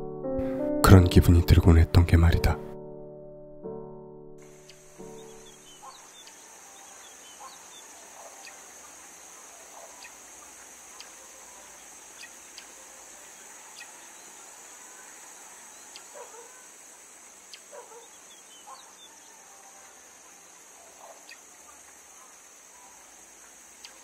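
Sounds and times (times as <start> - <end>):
bird chirps and calls: 4.4 - 19.9, 20.5 - 24.0
high insect drone: 4.4 - 24.0.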